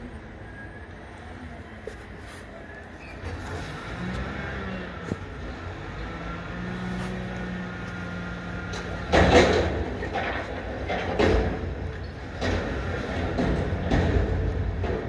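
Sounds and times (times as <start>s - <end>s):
hydraulics humming: 0.0s - 15.0s
truck engine revving: 3.2s - 15.0s
metal dumpster clattering: 8.4s - 15.0s.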